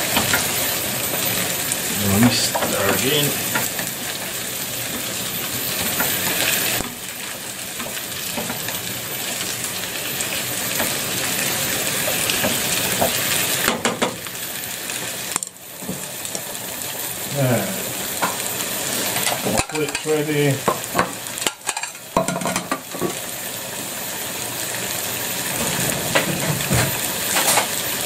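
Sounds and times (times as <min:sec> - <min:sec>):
vegetables sizzling in a saucepan: 0:00.0 - 0:28.0
knocks against the pan: 0:13.7 - 0:14.2, 0:20.7 - 0:23.2.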